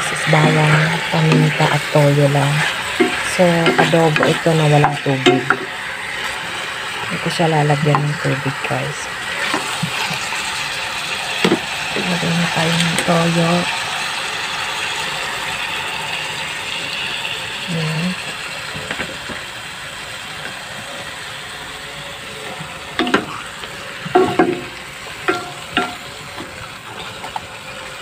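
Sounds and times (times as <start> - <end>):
squid sizzling in a pot: 0.1 - 28.0
sharp knocks: 24.1 - 26.0.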